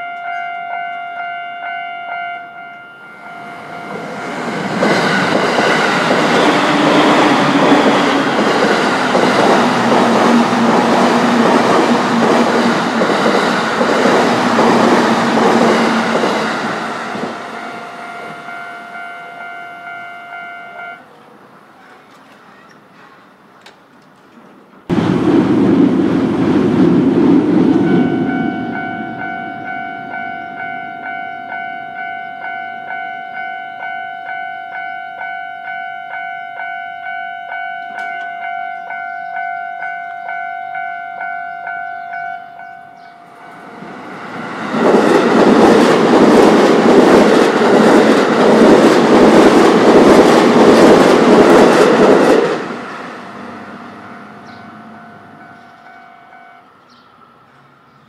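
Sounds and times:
level-crossing alarm bell: 0.0s - 10.6s, 14.4s - 21.1s, 27.7s - 48.2s, 53.7s - 56.8s
train passing with wheel clatter: 0.0s - 58.0s
loud rushing noise: 3.4s - 17.6s, 24.9s - 28.9s, 43.5s - 54.4s.

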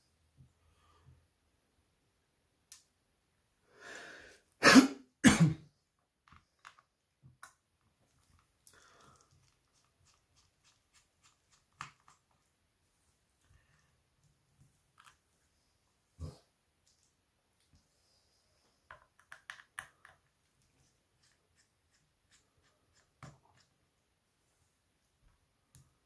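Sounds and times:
short breath: 3.7s - 4.4s
person coughing: 4.6s - 5.7s.

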